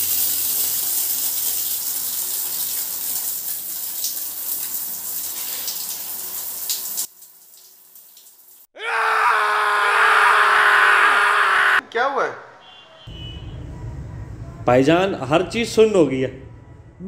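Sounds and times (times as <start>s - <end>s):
shower spray running: 0.0s - 8.7s.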